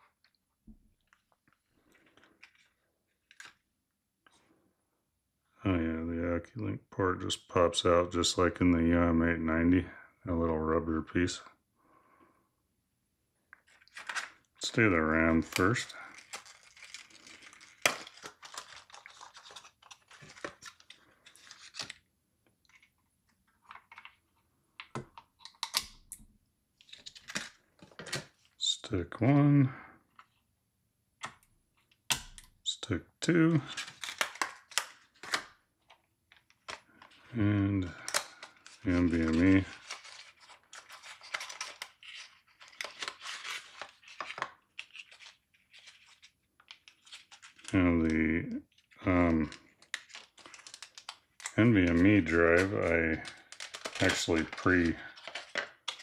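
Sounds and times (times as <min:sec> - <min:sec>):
plastic packaging crinkling: 0:15.4 - 0:22.9, 0:33.7 - 0:37.2, 0:37.9 - 0:47.8, 0:48.7 - 0:56.0.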